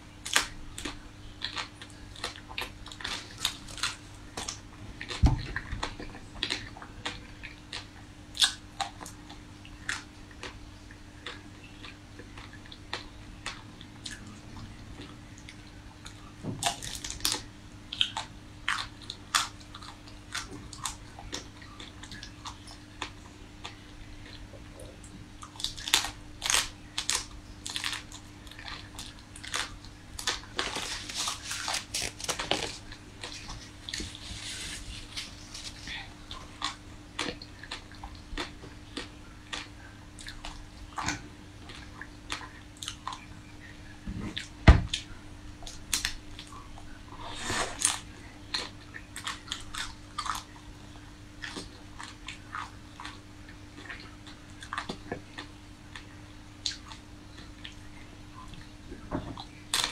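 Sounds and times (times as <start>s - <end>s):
crunching frozen ice cream bars: 0.2s - 10.6s, 11.2s - 24.5s, 25.4s - 43.3s, 59.6s - 59.9s.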